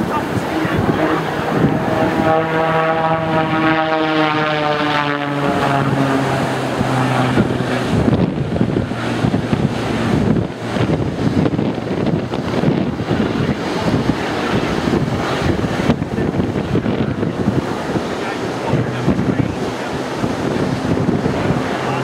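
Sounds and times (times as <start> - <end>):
propeller plane droning overhead: 0.0 - 22.0
wind buffeting microphone: 0.0 - 22.0.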